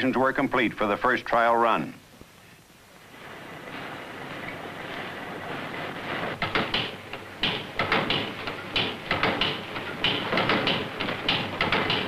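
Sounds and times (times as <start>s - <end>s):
engine hissing puffs: 2.4s - 7.4s
engine mechanical knocks: 6.4s - 12.0s.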